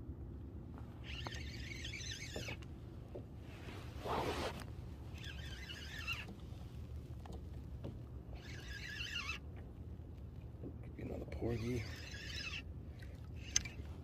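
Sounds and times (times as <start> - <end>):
fishing reel whirring: 1.0 - 2.6, 5.1 - 6.4, 8.3 - 9.4, 11.4 - 12.7, 13.4 - 13.9.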